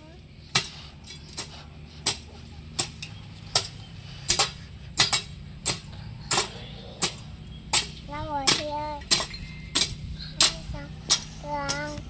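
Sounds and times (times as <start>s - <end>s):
garden hoe chopping soil: 0.5s - 12.0s.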